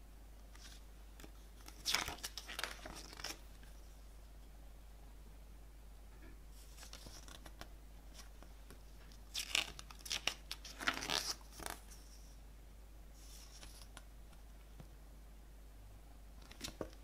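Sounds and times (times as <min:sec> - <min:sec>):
paper rustling and crinkling: 0:00.5 - 0:03.4, 0:06.6 - 0:08.5.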